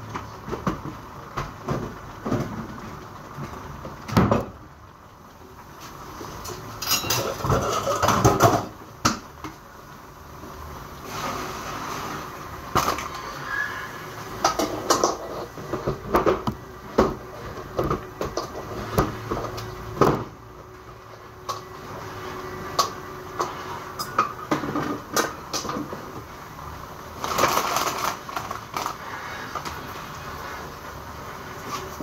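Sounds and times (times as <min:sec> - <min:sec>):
pots and pans clattering: 0:06.4 - 0:09.2, 0:14.4 - 0:20.4, 0:22.8 - 0:26.1.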